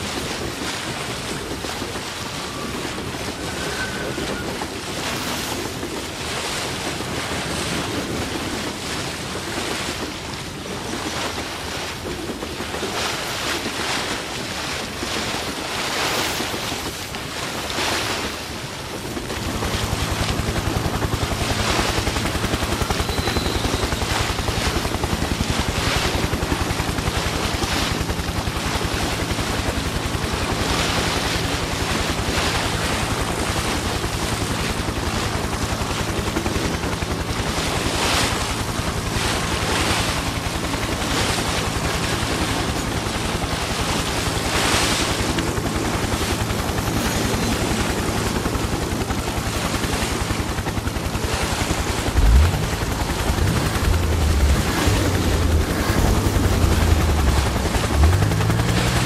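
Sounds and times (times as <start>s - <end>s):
pulsing mechanical hum: 0.0s - 59.0s
rushing surging noise: 14.2s - 59.0s.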